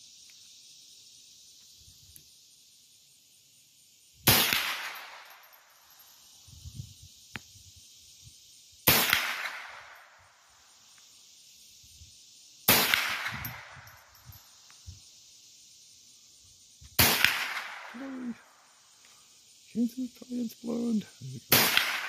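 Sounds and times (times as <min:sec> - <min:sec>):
rifle shots with echo: 0:04.3 - 0:05.3, 0:08.9 - 0:09.9, 0:12.7 - 0:13.7, 0:17.0 - 0:18.2, 0:21.5 - 0:22.0.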